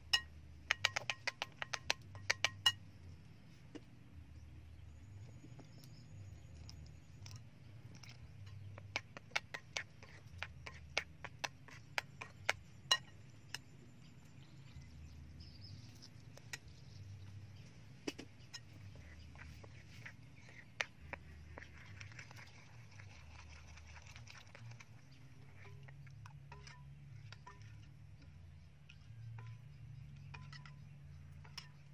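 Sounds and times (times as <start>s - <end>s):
metal spoon clinking ceramic bowl: 0.0s - 2.8s, 30.2s - 31.9s
soft scraping of batter stirring: 0.0s - 31.9s.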